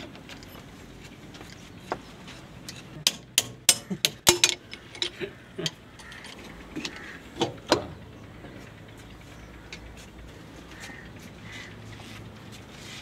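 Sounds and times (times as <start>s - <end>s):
metal spanners clinking on fittings: 2.6s - 6.4s.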